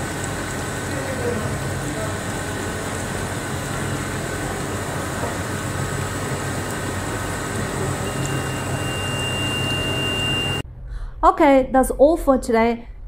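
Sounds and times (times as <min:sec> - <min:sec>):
fluid pouring and splashing: 0:00.0 - 0:10.0
machine hum: 0:00.0 - 0:11.1
thin high whine: 0:07.1 - 0:10.6.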